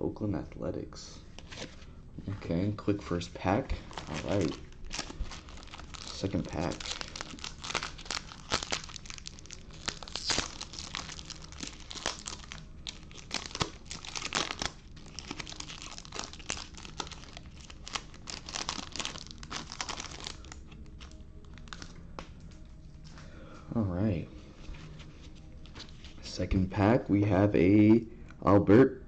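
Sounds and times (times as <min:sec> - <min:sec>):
foil wrapper crinkling and tearing: 0:03.8 - 0:22.6.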